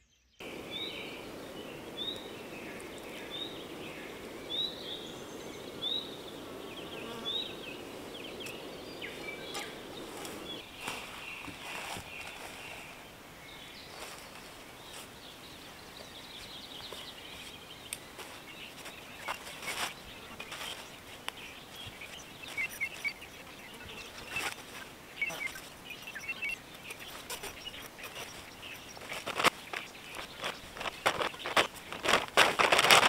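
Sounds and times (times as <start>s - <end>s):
small birds chirping: 0.0s - 33.0s
outdoor hiss: 0.4s - 32.7s.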